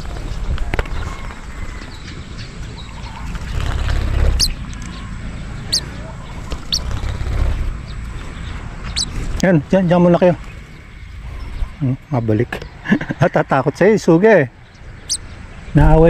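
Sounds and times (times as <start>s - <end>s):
wind buffeting microphone: 0.0s - 9.8s
high bird chirps: 2.8s - 7.0s, 8.8s - 9.2s, 14.6s - 15.6s.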